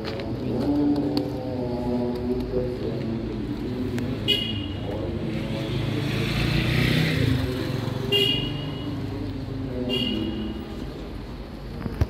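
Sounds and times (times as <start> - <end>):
motor vehicle passing: 4.9 - 9.6.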